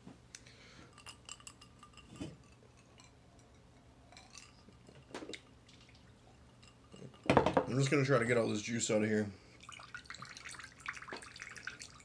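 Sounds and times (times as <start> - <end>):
drinking glass clinking: 0.9 - 5.0, 6.3 - 8.7.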